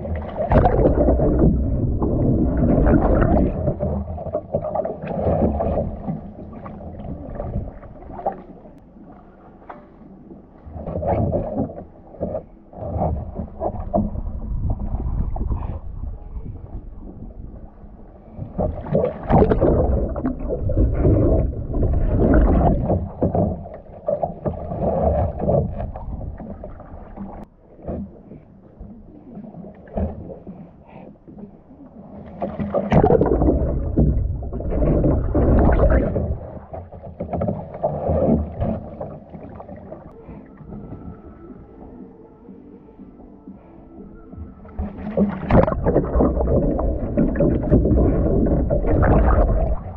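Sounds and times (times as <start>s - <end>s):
water splashing around kayak: 0.0s - 49.9s.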